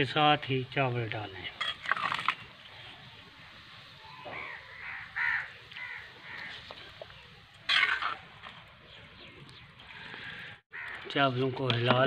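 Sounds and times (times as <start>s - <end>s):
crow cawing: 4.2s - 6.8s, 10.2s - 11.1s.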